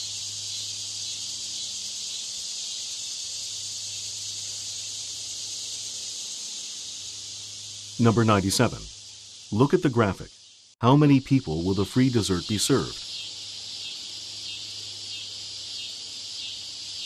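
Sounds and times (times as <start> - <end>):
high-pitched hiss: 0.0 - 17.0
low even hum: 7.1 - 9.0.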